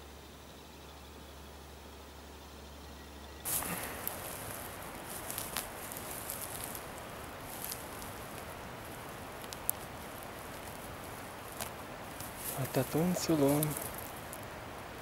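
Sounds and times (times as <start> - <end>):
hand brushing through dry needles: 3.5 - 14.4.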